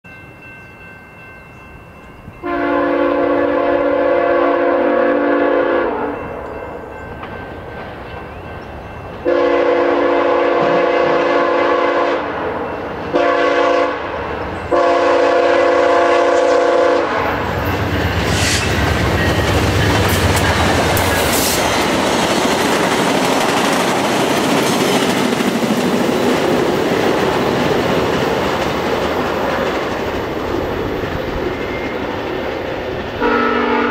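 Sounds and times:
locomotive multi-chime horn: 0.1s - 7.6s, 8.2s - 22.0s, 33.2s - 33.9s
train wheels clattering on rails: 6.2s - 11.3s, 17.2s - 33.4s.

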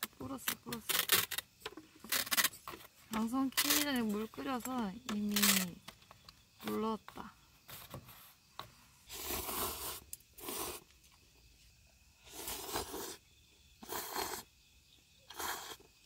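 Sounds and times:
person slurping noodles: 9.1s - 10.8s, 12.3s - 13.2s, 13.8s - 14.5s, 15.3s - 15.9s.

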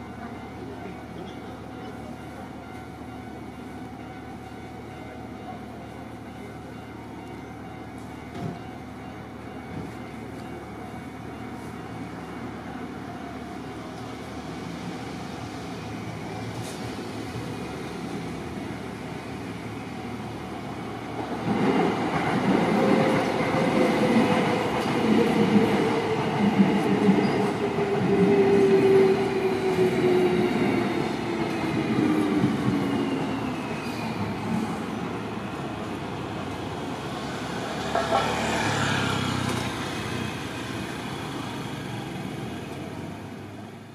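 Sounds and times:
train wheels rumbling over rails: 13.8s - 43.6s.

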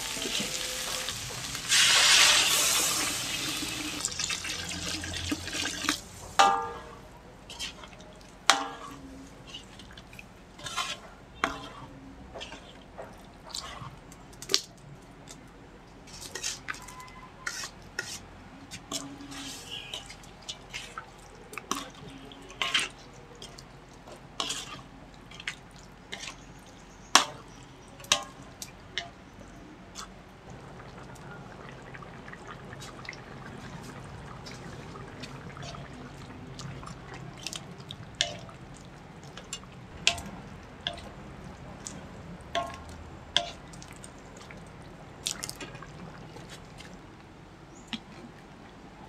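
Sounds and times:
coconut milk sizzling in a wok: 0.0s - 12.9s, 16.0s - 29.2s, 30.5s - 44.7s
spatula clinking against wok: 8.5s - 9.7s.

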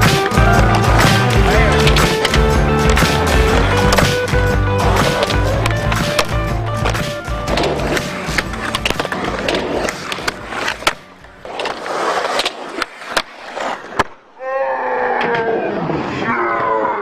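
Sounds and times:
music playing: 0.0s - 12.0s
skateboard clacks: 0.0s - 14.1s
skateboard wheels rolling on concrete: 0.0s - 14.2s.

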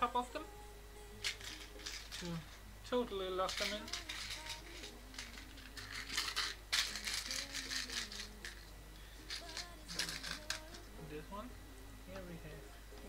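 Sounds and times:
plastic pieces clattering: 1.2s - 2.5s, 3.4s - 8.6s, 9.3s - 10.8s.

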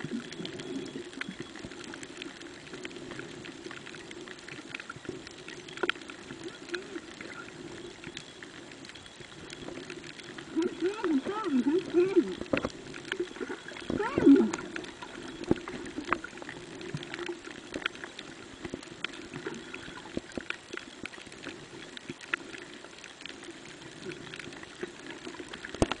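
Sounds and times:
water gurgling burst: 0.0s - 22.8s
muffled underwater hum: 0.0s - 26.0s
sharp clicks and crackles: 0.0s - 26.0s.

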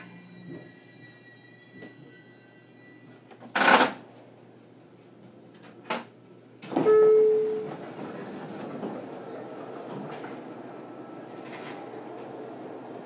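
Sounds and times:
low train rumble: 0.0s - 3.3s, 6.2s - 13.0s
train door clunk: 5.6s - 9.2s.

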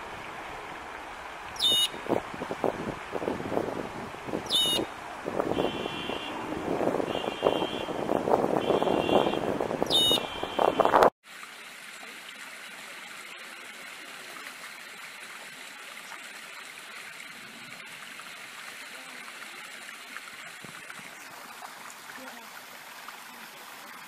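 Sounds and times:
water babbling over stones: 0.0s - 24.0s
bird trilled call: 1.6s - 2.0s, 4.5s - 4.9s, 9.9s - 10.3s
wind noise on microphone: 1.6s - 11.1s.

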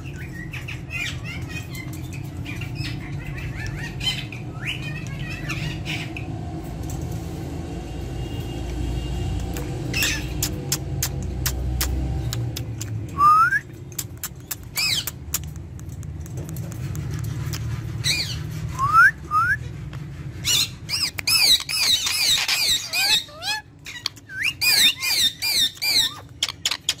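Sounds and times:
parrot whistles and shrill calls: 9.9s - 10.6s, 13.1s - 14.0s, 18.0s - 19.7s, 20.4s - 27.0s.

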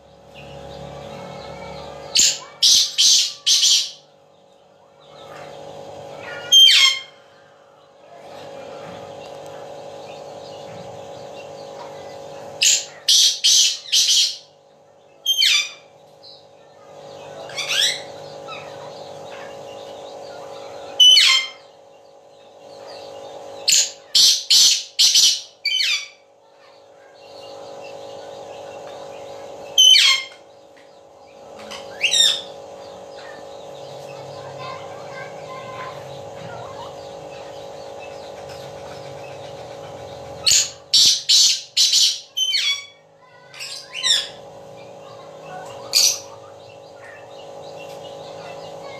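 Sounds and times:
bird calling sharp high notes: 29.7s - 30.4s.

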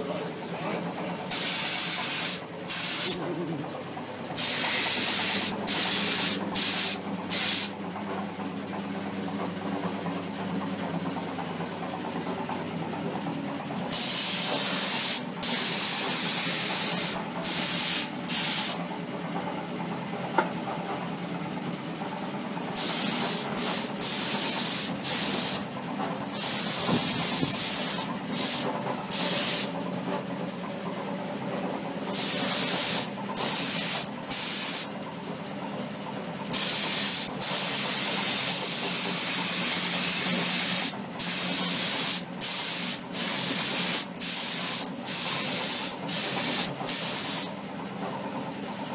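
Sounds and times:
paint spray gun hissing: 1.3s - 3.2s, 4.4s - 7.7s, 13.9s - 18.8s, 22.7s - 25.7s, 26.3s - 29.7s, 32.1s - 34.9s, 36.5s - 47.6s.

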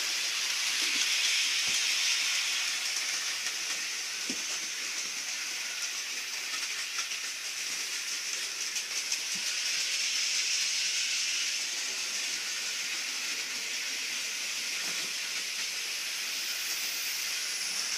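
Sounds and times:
model train whirring on track: 0.0s - 17.9s
faint rapid clicking: 5.7s - 9.9s.

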